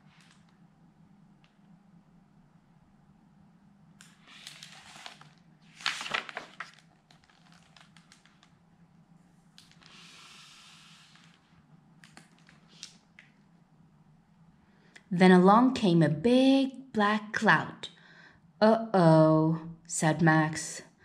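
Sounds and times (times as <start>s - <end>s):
book page turning: 4.0s - 8.6s, 9.6s - 11.5s, 12.1s - 13.0s.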